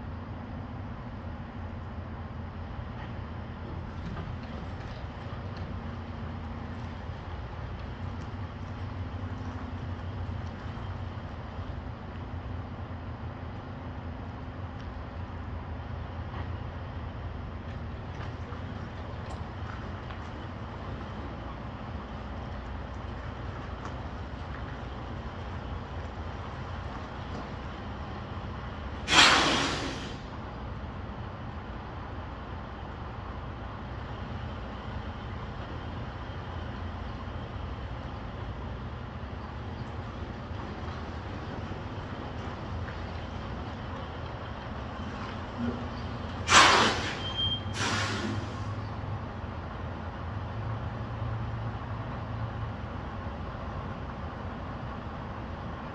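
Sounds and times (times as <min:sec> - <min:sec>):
truck diesel engine rumbling: 0:00.0 - 0:55.9
air brake hiss: 0:29.0 - 0:30.4, 0:46.4 - 0:48.9.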